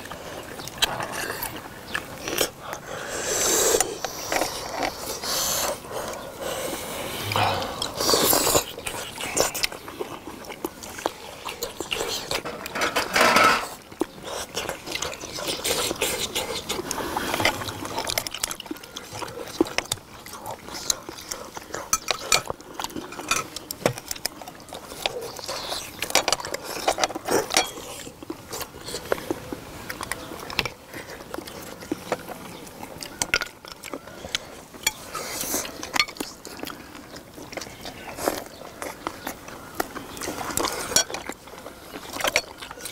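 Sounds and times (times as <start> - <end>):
slurping broth: 0.0 - 29.5
people chewing: 0.0 - 42.9.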